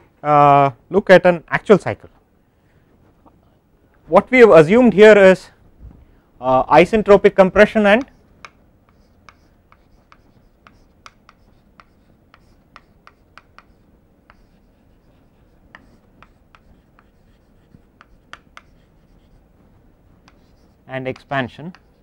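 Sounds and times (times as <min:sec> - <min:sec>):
chalk tapping and scratching: 0:07.2 - 0:22.0.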